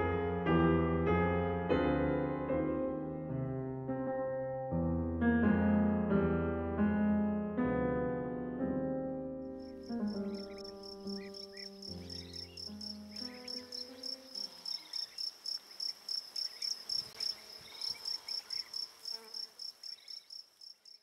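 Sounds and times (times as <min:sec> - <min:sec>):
piano music: 0:00.0 - 0:14.8
cricket chirping: 0:09.6 - 0:21.0.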